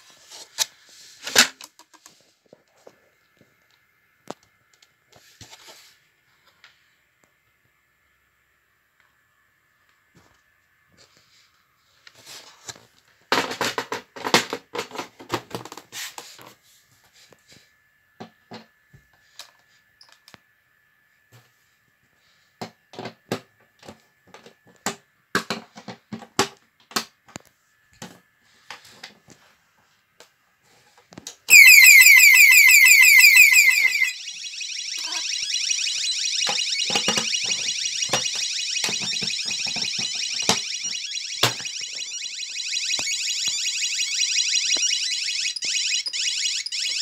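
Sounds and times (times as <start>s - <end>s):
faint high beep tone: 31.5s - 35.6s
alarm siren sweeps: 31.5s - 47.0s.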